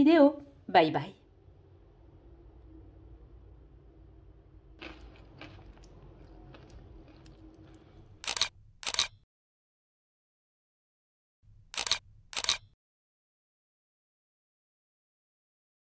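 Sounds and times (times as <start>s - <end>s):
low room hum: 0.0s - 8.9s
camera shutter sound effect: 8.2s - 9.2s, 11.7s - 12.8s.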